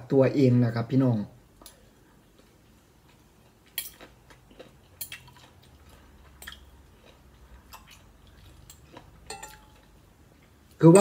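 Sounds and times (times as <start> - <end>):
person chewing food: 1.6 - 10.8
cutlery clicking on glass plate: 9.3 - 9.8.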